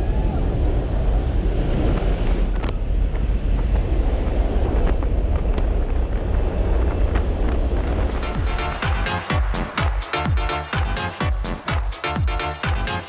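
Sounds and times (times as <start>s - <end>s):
wind buffeting microphone: 0.0s - 9.5s
wind rushing: 0.0s - 11.8s.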